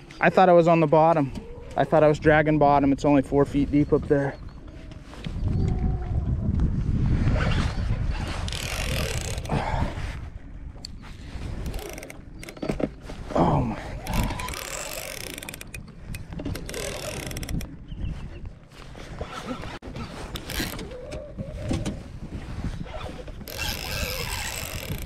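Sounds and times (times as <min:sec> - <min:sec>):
fishing reel clicking and ratcheting: 0:08.5 - 0:09.5, 0:11.6 - 0:12.6, 0:14.0 - 0:17.7, 0:20.3 - 0:20.8, 0:23.5 - 0:25.0.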